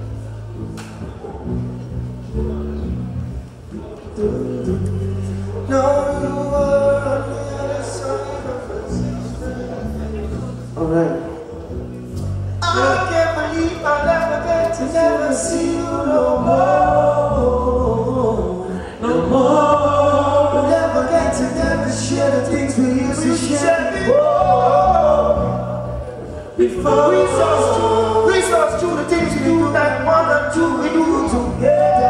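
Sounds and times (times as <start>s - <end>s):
amplified backing music: 0.0s - 32.0s
men singing into microphones: 4.0s - 10.1s, 12.6s - 32.0s.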